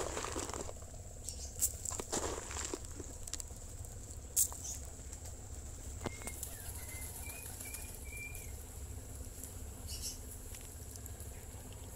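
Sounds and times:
pigeons pecking on concrete: 0:00.0 - 0:11.9
steady low hum: 0:00.0 - 0:11.9
pigeon wings flapping: 0:06.1 - 0:08.1.

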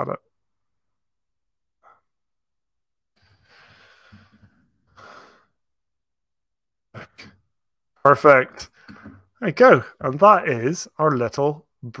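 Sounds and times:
person breathing: 0:03.2 - 0:05.6, 0:08.7 - 0:09.3.

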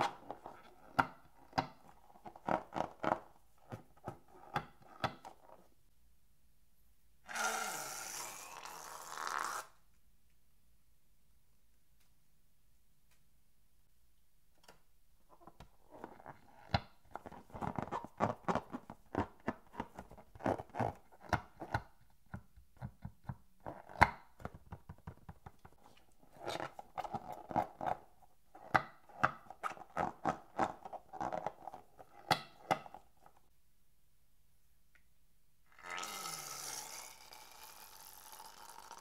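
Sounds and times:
balloons squeaking and rubbing: 0:07.2 - 0:09.8.

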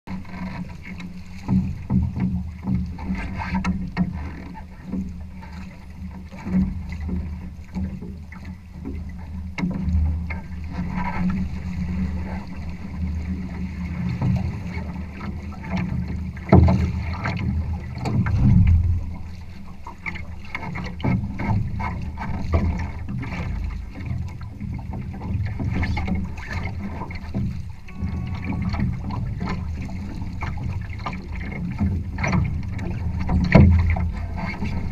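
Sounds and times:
hull knocks: 0:00.1 - 0:05.1, 0:12.2 - 0:34.9
water slapping against hull: 0:00.1 - 0:34.9.

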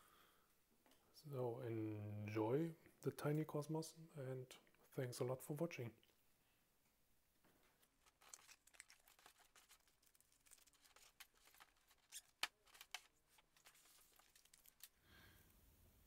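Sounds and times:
paper rustling: 0:07.7 - 0:15.1
small clicks and ticks: 0:07.8 - 0:15.0.

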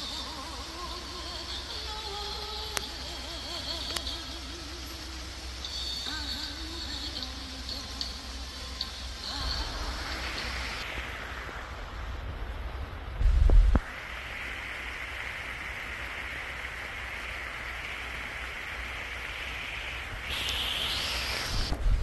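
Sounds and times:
heavy rain on leaves: 0:00.0 - 0:22.0
loud low rumble: 0:09.5 - 0:14.5.

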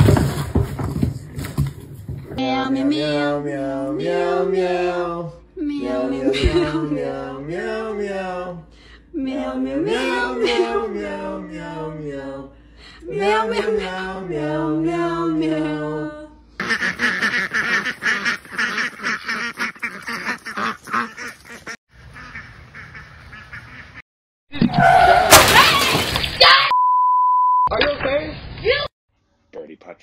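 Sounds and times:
person singing: 0:02.4 - 0:08.6, 0:09.2 - 0:16.4
waterfowl calling: 0:16.6 - 0:24.0.

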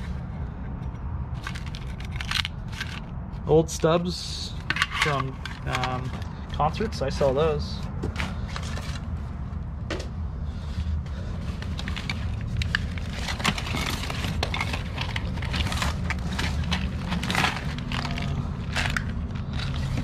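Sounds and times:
steady low hum: 0:00.0 - 0:20.0
papers rustling and crinkling: 0:04.7 - 0:09.3, 0:10.7 - 0:20.0.

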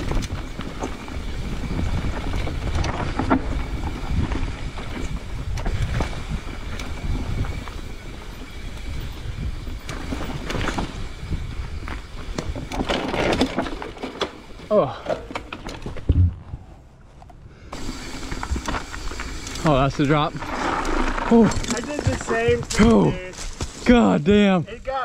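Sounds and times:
wind buffeting microphone: 0:00.0 - 0:12.8
bike rattles and knocks: 0:00.0 - 0:16.6, 0:17.2 - 0:24.9
tyres rumbling over dirt: 0:00.0 - 0:16.8, 0:17.7 - 0:25.0.

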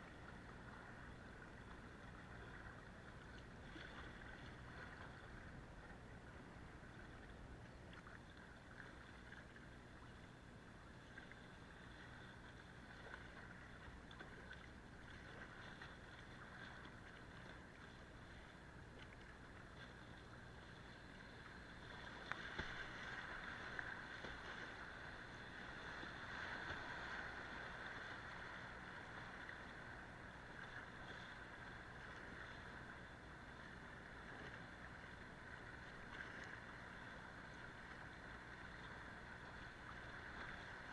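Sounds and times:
paddle strokes in water: 0:00.0 - 0:40.9
river water rushing and splashing: 0:21.5 - 0:30.8.

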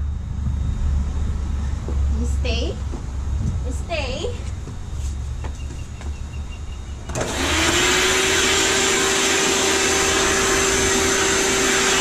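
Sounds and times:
vacuum cleaner motor running: 0:07.1 - 0:12.0.

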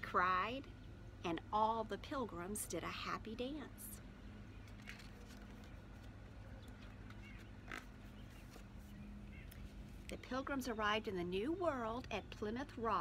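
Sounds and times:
steady low hum: 0:00.0 - 0:13.0
book pages turning: 0:04.6 - 0:10.1.

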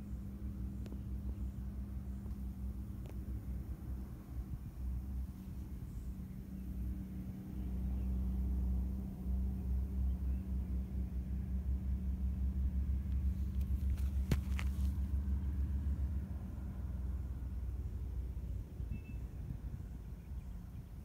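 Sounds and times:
low rumble with fluttering hum: 0:00.0 - 0:21.0.

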